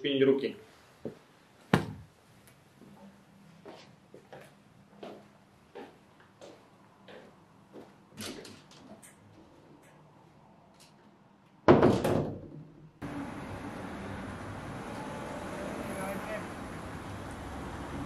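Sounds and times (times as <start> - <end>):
footsteps on hard floor: 3.6 - 8.0
door slamming shut: 11.7 - 12.6
steady outdoor background hiss: 13.0 - 18.0.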